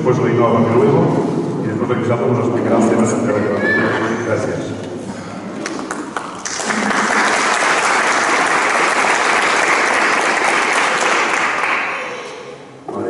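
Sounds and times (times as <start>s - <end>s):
audience applauding: 5.6s - 12.3s.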